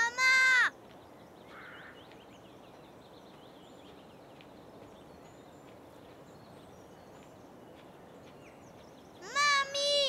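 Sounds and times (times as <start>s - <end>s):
bird chirps: 0.0s - 10.0s.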